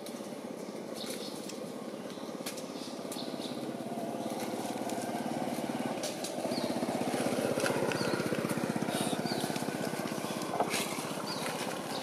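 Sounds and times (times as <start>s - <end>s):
small engine running: 3.4s - 12.0s.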